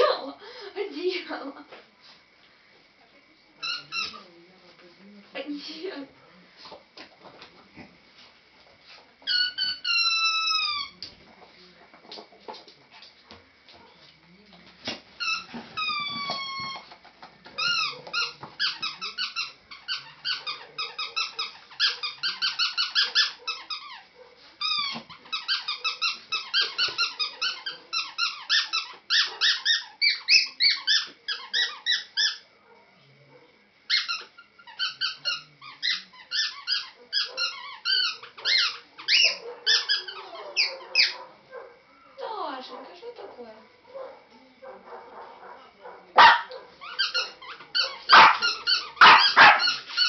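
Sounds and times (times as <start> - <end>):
puppy squealing: 24.7 - 32.4, 33.9 - 41.2, 46.8 - 50.0
puppy whining: 24.7 - 32.5, 33.9 - 41.3.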